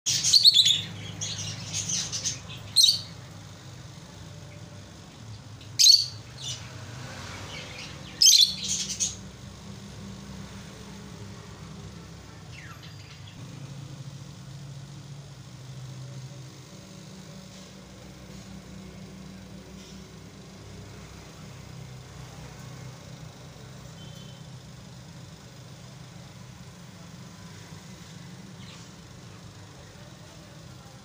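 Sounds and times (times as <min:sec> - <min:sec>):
lovebirds chirping: 0:00.1 - 0:09.6, 0:12.3 - 0:13.5.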